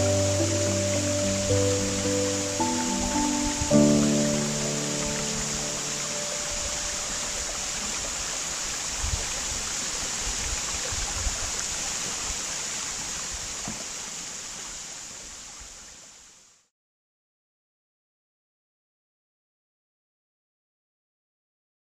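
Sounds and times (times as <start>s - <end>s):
waterfall splashing onto rock: 0.0s - 16.0s.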